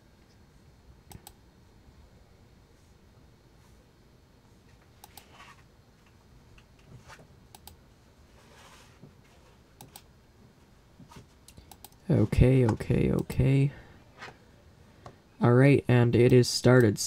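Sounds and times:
soft rustles: 8.2s - 9.7s.

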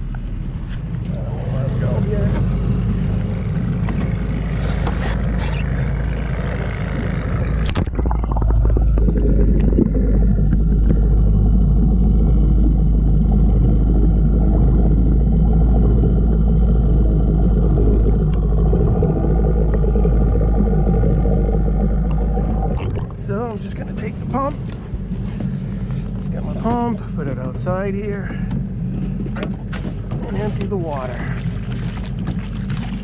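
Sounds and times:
low underwater rumble: 0.0s - 33.0s
splash into water: 31.0s - 33.0s.

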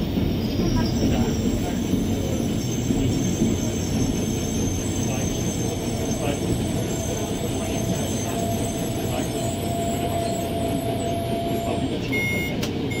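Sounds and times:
engine and wheels rumbling on rail: 0.0s - 13.0s
thin steady whine: 3.0s - 12.6s
short electronic beep: 7.9s - 13.0s.

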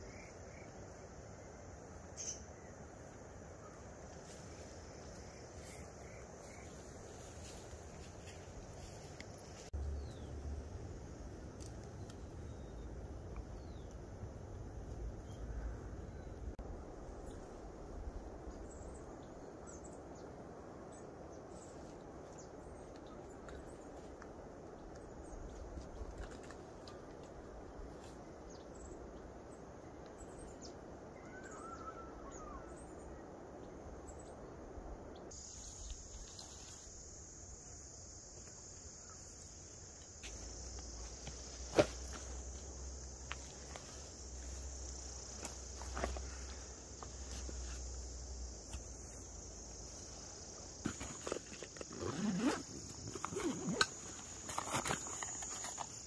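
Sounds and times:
faint bird chirps: 2.1s - 2.7s, 30.2s - 33.3s
rustling: 39.3s - 56.0s
zipper opening: 51.0s - 55.8s.

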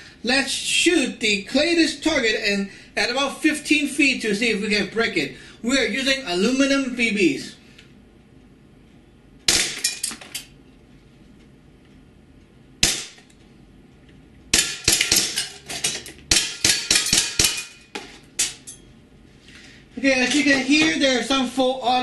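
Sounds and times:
airsoft pistol shots: 9.5s - 9.9s, 12.8s - 13.2s.

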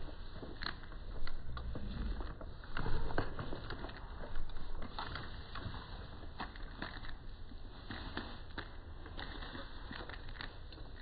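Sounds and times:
rifle handling rustling and clicks: 0.0s - 11.0s.

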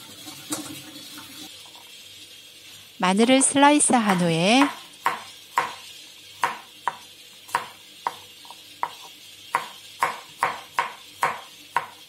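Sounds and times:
knife chopping on wooden board: 4.1s - 5.8s, 6.4s - 12.0s.

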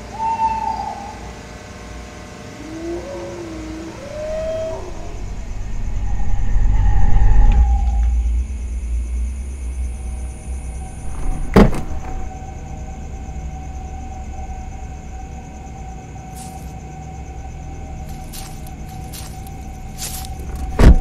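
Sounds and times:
steady humming tone: 0.0s - 21.0s
car engine rumbling: 4.3s - 21.0s.

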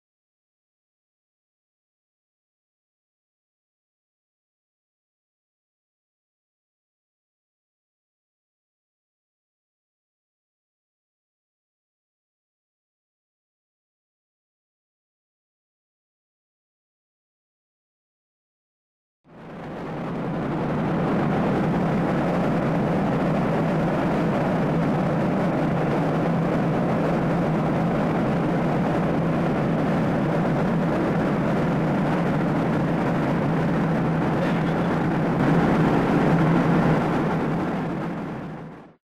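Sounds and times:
jet engines and airflow rush: 19.3s - 39.0s
low steady hum: 19.3s - 39.0s.

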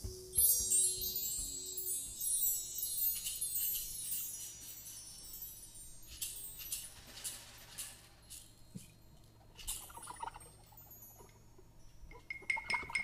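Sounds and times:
basket shaker strokes: 0.0s - 8.6s
bar chimes tinkling: 0.0s - 13.0s.

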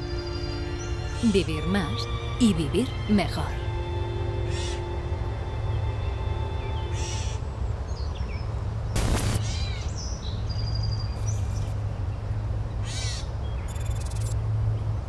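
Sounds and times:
crow-like bird calls: 4.5s - 4.8s, 12.8s - 14.2s.

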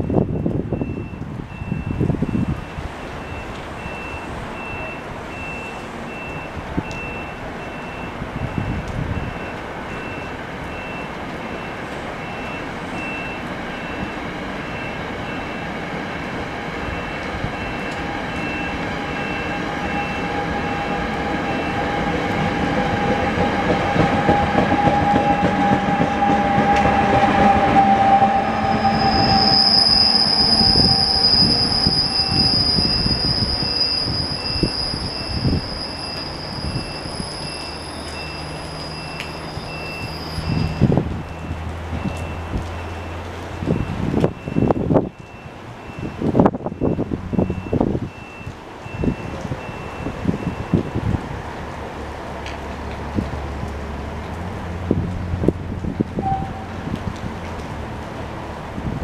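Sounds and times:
train wheels squealing: 16.8s - 40.9s
train motor whine: 16.9s - 40.8s.

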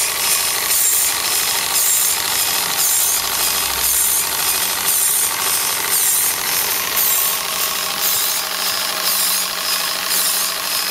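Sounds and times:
model steam engine running: 0.0s - 10.9s.

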